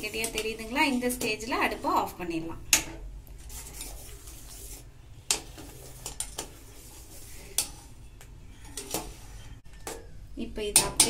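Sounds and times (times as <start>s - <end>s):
spoon scraping pot: 0.0s - 2.2s, 3.4s - 10.0s.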